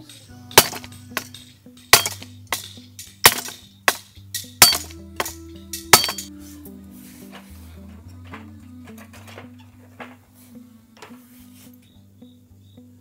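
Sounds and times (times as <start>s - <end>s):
background music: 0.0s - 13.0s
machete chopping branches: 0.6s - 1.3s, 1.9s - 6.3s.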